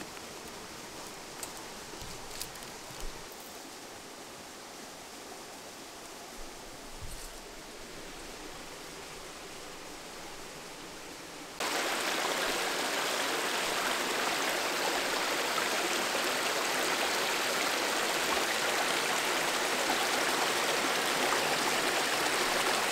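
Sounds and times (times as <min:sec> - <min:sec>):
stream rushing over rocks: 0:07.7 - 0:22.9.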